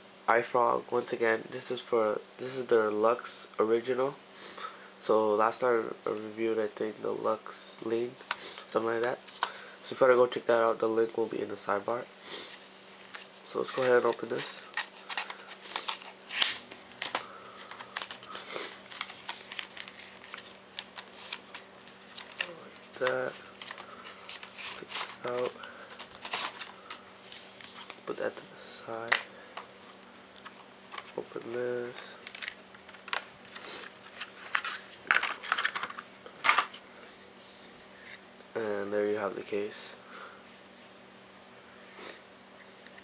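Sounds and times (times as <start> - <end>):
packaging scraping and crinkling: 12.5 - 28.0, 32.0 - 36.8.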